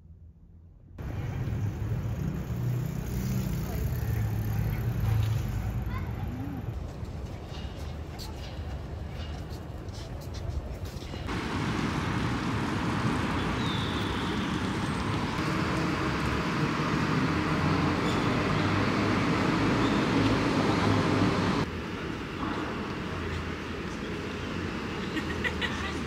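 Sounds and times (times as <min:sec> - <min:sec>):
street ambience: 0:00.2 - 0:26.0
passing vehicle traffic rumble: 0:01.0 - 0:06.8, 0:11.2 - 0:26.0.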